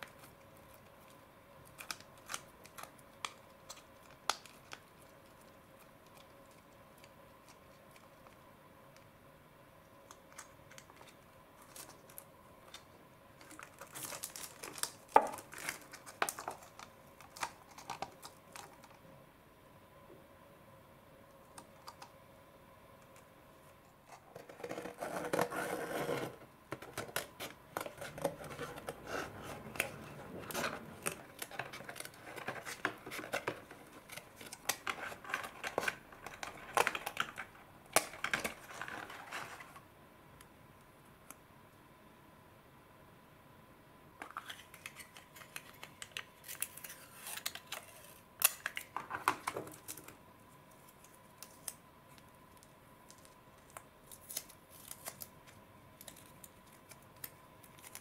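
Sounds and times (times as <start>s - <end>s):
plastic wrapper crinkling: 10.1s - 19.0s, 26.8s - 39.8s, 44.2s - 58.0s.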